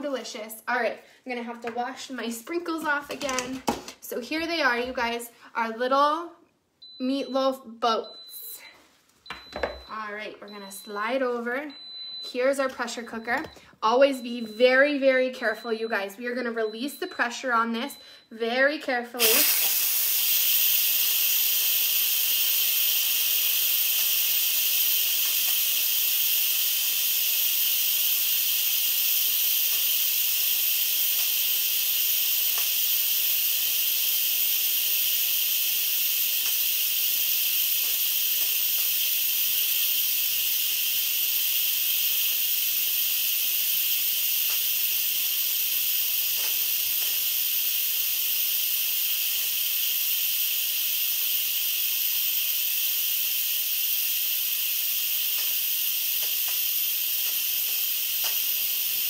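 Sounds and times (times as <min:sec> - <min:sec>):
pressure cooker steam hissing: 0:19.2 - 0:59.0.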